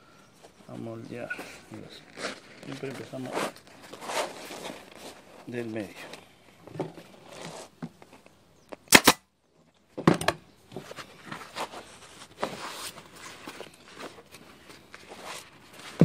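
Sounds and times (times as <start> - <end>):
vinyl rustling: 0.4 - 8.4, 10.7 - 16.0
staple gun firing: 8.9 - 9.2.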